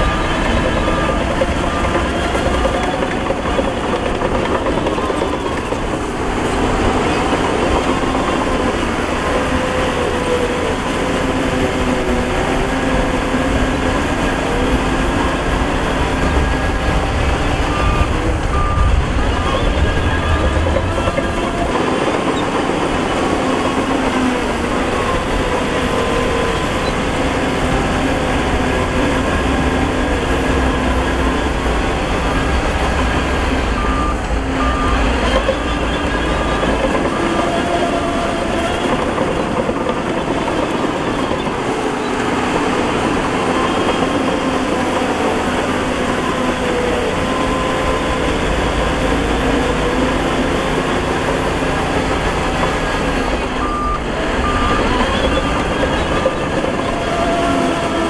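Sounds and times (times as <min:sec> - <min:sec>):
reversing alarm beeps: 0:00.0 - 0:05.7, 0:16.1 - 0:23.5, 0:32.3 - 0:38.1, 0:53.4 - 0:57.7
diesel machinery running: 0:00.0 - 0:58.0.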